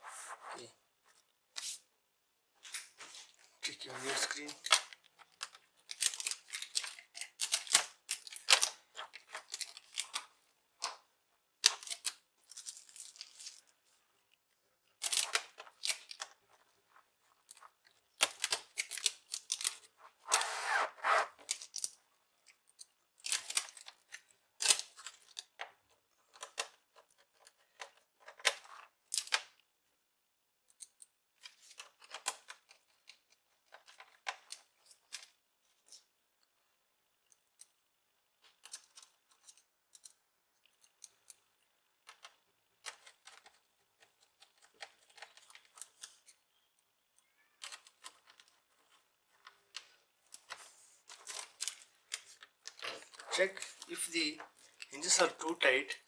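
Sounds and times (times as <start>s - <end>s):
plastic parts clicking and tapping: 4.5s - 13.6s, 22.7s - 29.6s, 30.6s - 36.1s, 37.2s - 55.0s
plastic scraping: 19.8s - 21.5s.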